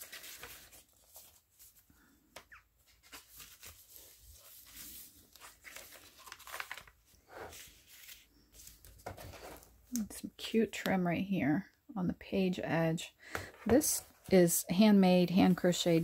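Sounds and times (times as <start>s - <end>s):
paper pages rustling: 0.0s - 9.8s.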